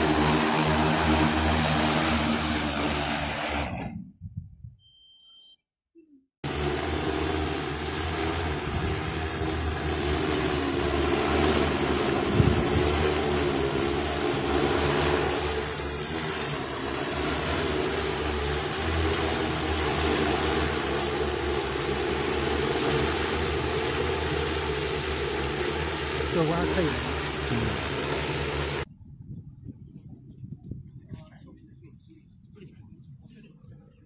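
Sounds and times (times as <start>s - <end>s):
drone propellers whirring: 0.0s - 4.2s, 6.4s - 28.9s.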